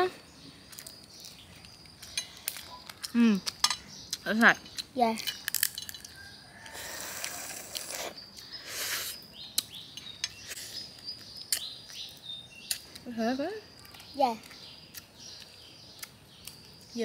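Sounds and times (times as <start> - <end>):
birds chirping: 0.0 - 17.0
crayfish shells crackling: 0.7 - 8.5
sucking slurping sounds: 6.7 - 9.2.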